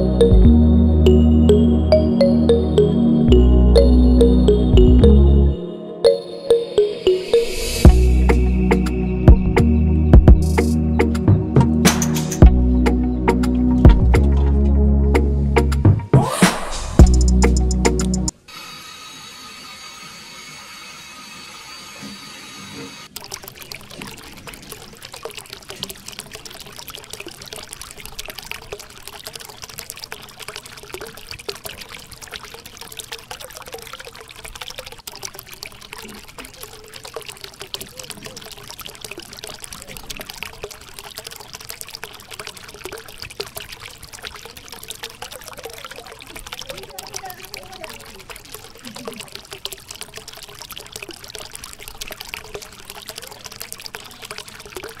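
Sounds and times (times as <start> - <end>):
water trickling onto wet sand: 22.7 - 55.0.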